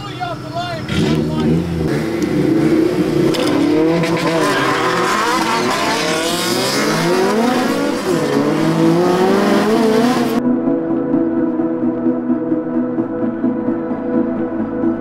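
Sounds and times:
car engines accelerating hard: 0.8 - 10.4.

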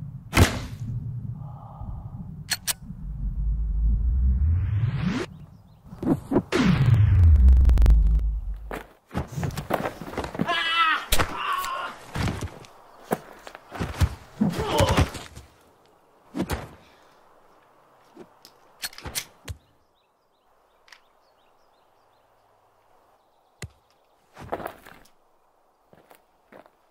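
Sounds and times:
sharp click: 2.4 - 2.8
person crying out strained: 10.4 - 12.0
thuds and knocks of a scuffle: 13.7 - 15.5.

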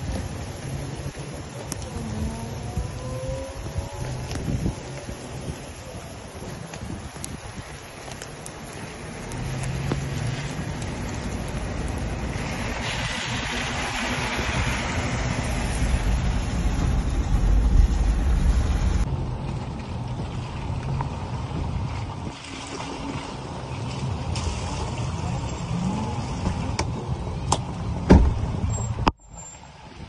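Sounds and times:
wind-like noise: 0.0 - 30.0
vehicle rumble inside cabin: 15.2 - 21.7.

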